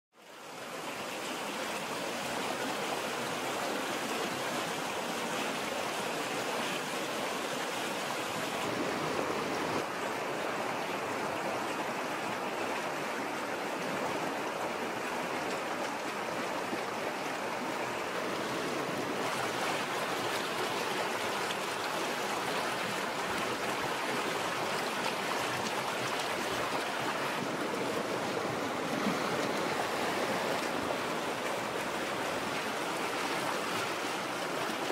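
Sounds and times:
stream flowing over rocks: 0.2 - 34.9.

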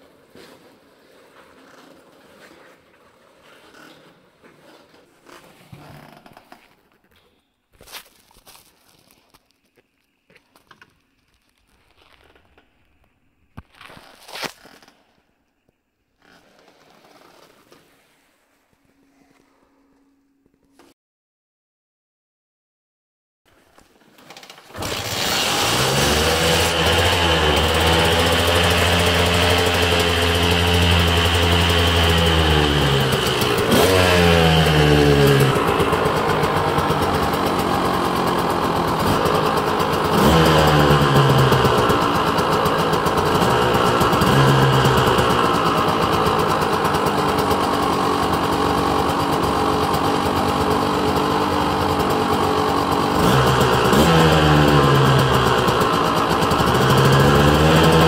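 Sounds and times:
dirt bike engine revving: 24.7 - 58.0.

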